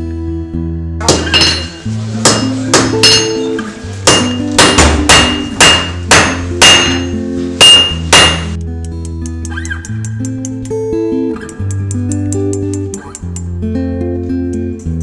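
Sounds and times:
hammer ringing on anvil: 1.0 - 8.6.

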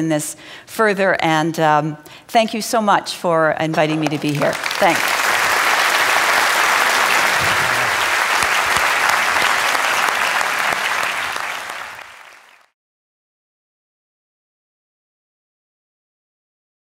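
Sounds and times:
large audience applauding: 4.0 - 12.8.

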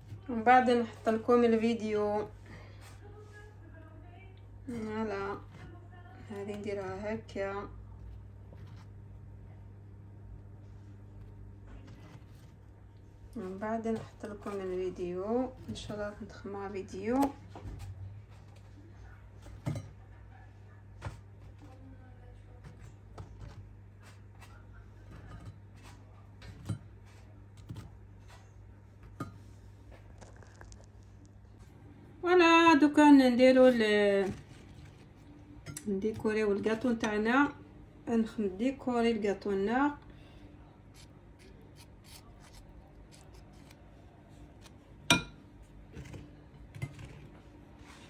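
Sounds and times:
steady low hum: 0.0 - 48.0
spoon scraping jam on cookie: 40.8 - 45.3.

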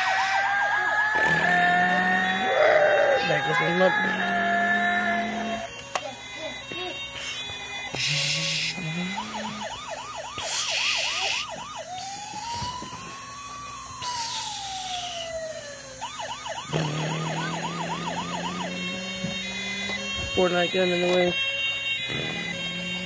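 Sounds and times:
toy siren warbling: 0.0 - 23.0
bursts of hiss: 10.4 - 12.8.

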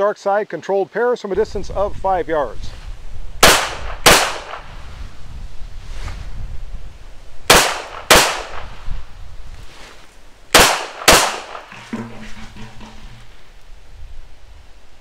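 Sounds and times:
pistol shots with echo: 3.4 - 4.7, 7.5 - 8.8, 10.5 - 11.7.

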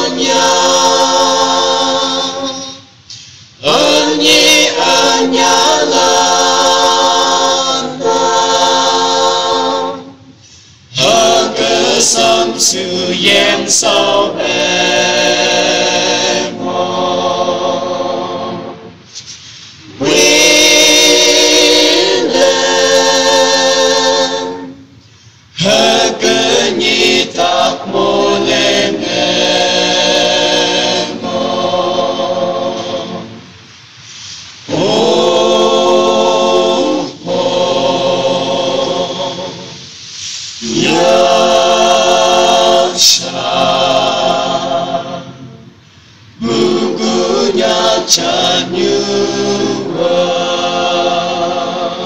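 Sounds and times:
choir singing unaccompanied: 0.0 - 3.0, 3.6 - 33.8, 34.6 - 52.0.

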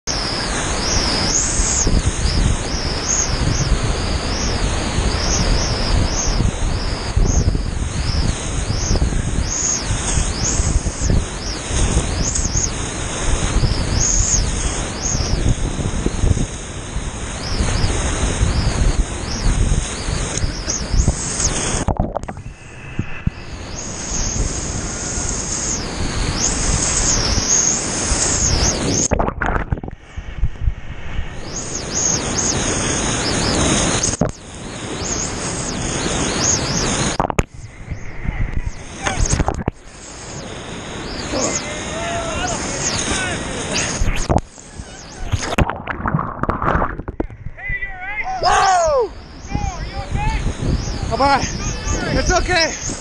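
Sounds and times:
wind buffeting microphone: 0.1 - 53.0
whitewater rushing: 38.3 - 47.2.

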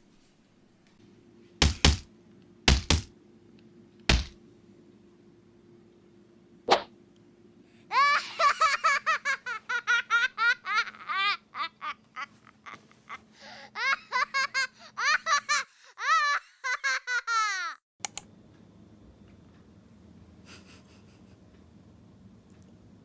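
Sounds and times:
high-pitched laughter: 7.9 - 17.8.

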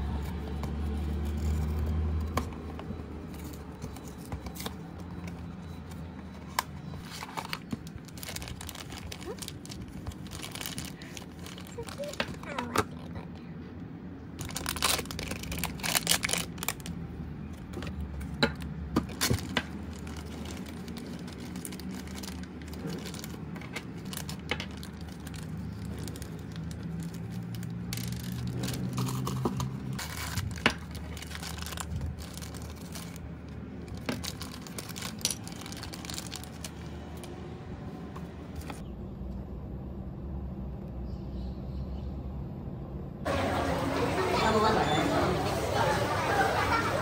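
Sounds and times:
plastic bags crinkling: 7.0 - 13.0, 14.4 - 17.0, 19.0 - 37.4.

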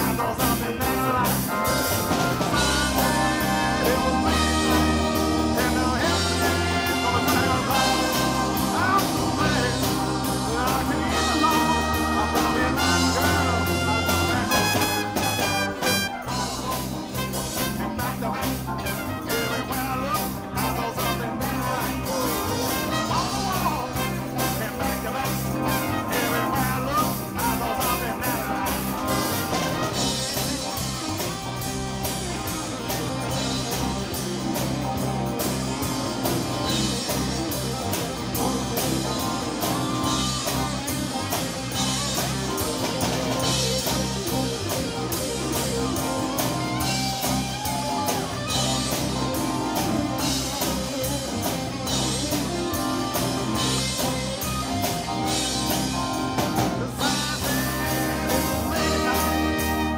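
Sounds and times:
drum kit with cymbals: 0.0 - 59.9
guitar: 0.0 - 59.9.

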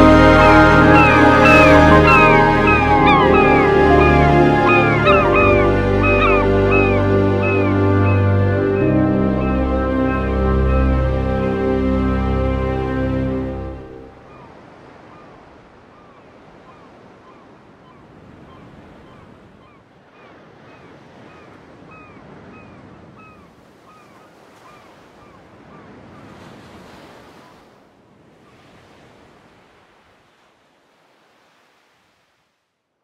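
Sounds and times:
sea surf washing on shore: 0.0 - 19.4.

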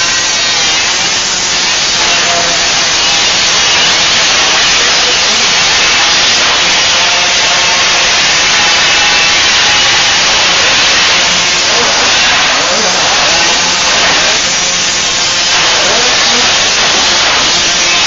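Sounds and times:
dirt bike engines buzzing: 0.0 - 18.0.

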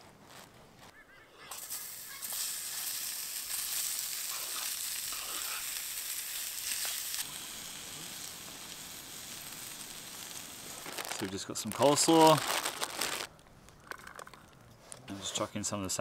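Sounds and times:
fish sizzling in a pan: 1.5 - 13.3.

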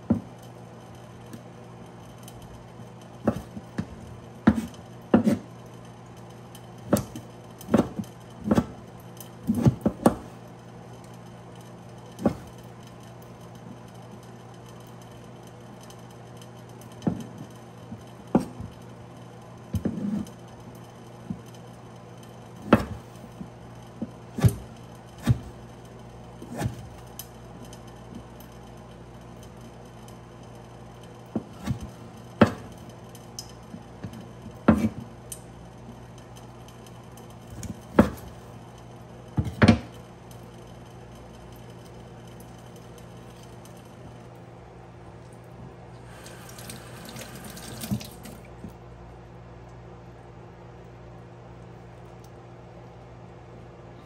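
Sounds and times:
steady low hum: 0.0 - 54.0
knife chopping on wooden board: 3.3 - 5.5, 6.9 - 8.8, 22.6 - 23.1, 24.4 - 25.5, 34.7 - 35.0.

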